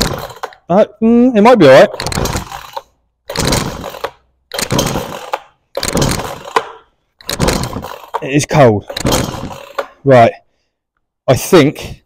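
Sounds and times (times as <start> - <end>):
chainsaw starter cord pulled: 0.0 - 0.7, 1.8 - 10.0.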